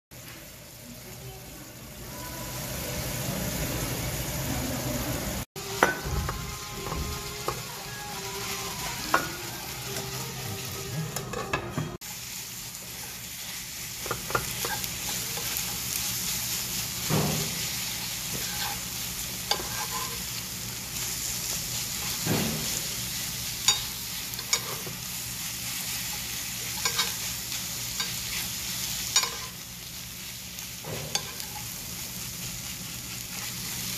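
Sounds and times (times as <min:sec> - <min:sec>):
sauce sizzling and bubbling in a skillet: 0:12.0 - 0:33.9
metal spoons scraping an iron pan: 0:19.5 - 0:20.2, 0:23.7 - 0:24.9, 0:26.7 - 0:27.2, 0:29.2 - 0:29.5, 0:30.9 - 0:31.7.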